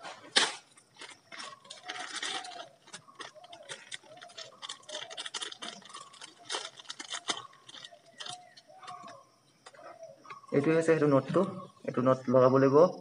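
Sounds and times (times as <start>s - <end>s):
plastic packaging crinkling: 0.3s - 9.2s.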